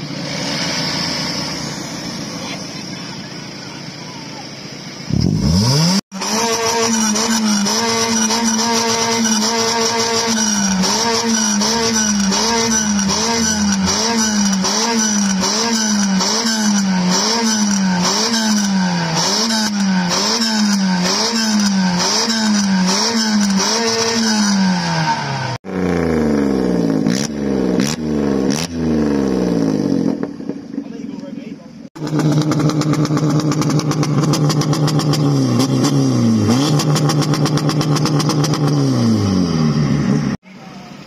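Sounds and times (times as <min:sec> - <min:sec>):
car engine revving in sweeps: 0:00.0 - 0:02.4, 0:05.0 - 0:30.6
car engine revving: 0:04.6 - 0:31.1, 0:31.8 - 0:40.4
sharp exhaust cracks: 0:32.0 - 0:38.8.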